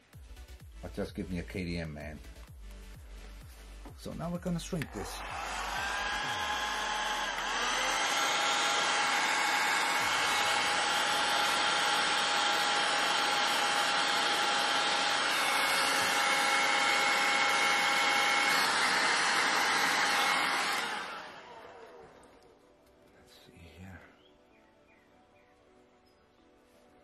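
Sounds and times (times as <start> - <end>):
heat gun running: 4.6 - 22.5.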